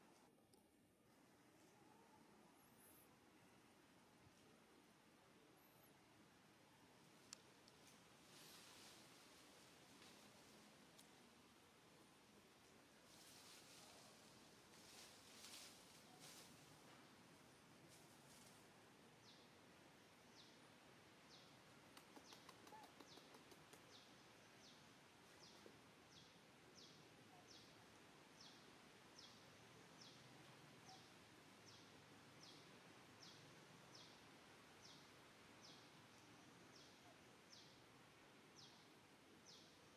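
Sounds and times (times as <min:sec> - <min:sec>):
faint forest ambience: 0:00.0 - 0:39.9
faint ticks: 0:07.2 - 0:08.0, 0:10.9 - 0:11.2, 0:21.8 - 0:24.0.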